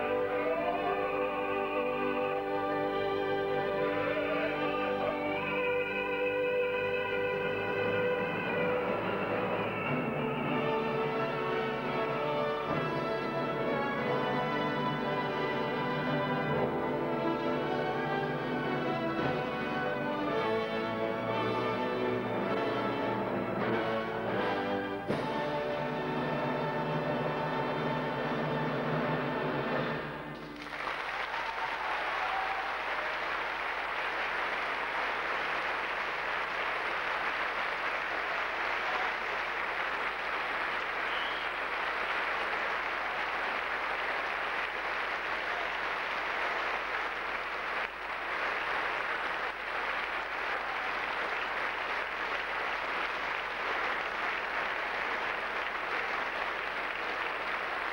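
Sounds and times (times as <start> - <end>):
audience applauding: 30.4 - 57.9.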